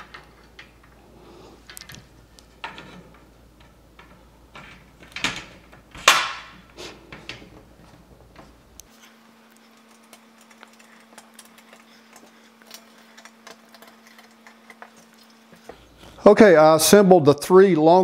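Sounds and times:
metal track clicks and knocks: 0:01.7 - 0:08.6.

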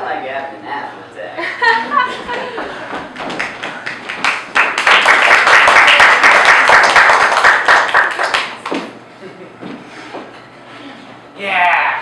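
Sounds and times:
audience applauding: 0:03.2 - 0:08.8.

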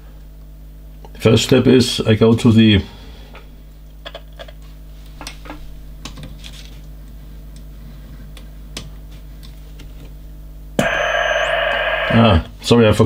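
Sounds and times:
steady low hum: 0:00.0 - 0:13.0
radio knobs and switches clicking: 0:10.8 - 0:12.2.

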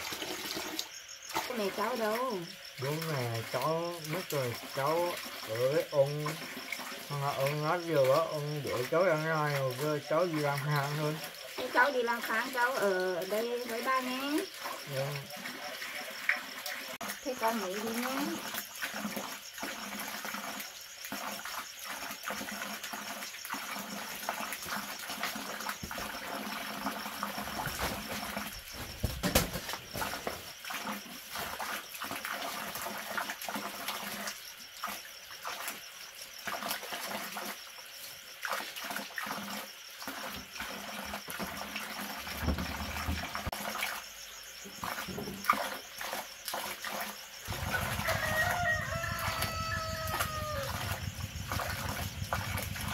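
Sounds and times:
insects trilling: 0:00.0 - 0:52.9
bamboo mat rustling and clattering: 0:27.5 - 0:30.5.

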